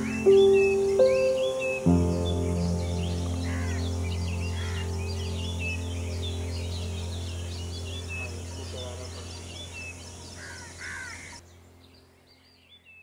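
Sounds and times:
harsh low bird calls: 0.0 - 11.4
small birds chirping: 0.0 - 13.0
steady low hum: 1.9 - 11.8.

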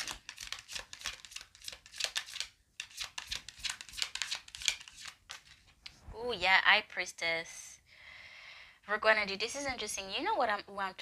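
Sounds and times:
cards being shuffled: 0.0 - 5.9.

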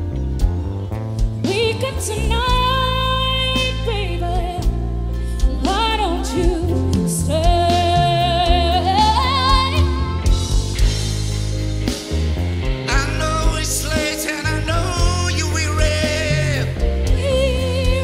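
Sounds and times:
bass guitar: 0.0 - 18.0
drums: 0.0 - 18.0
woman singing with vibrato: 5.6 - 10.2, 16.2 - 18.0.

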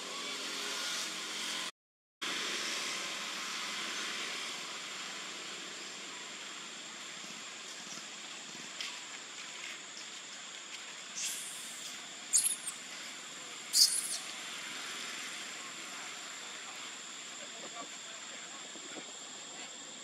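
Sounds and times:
steady hiss: 2.3 - 20.0
monkeys squeaking: 12.3 - 12.8, 13.7 - 14.3.

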